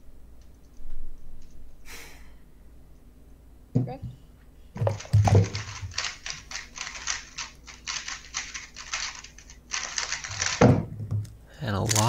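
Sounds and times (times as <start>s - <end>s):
speed cube rapid plastic clicks: 4.8s - 10.7s.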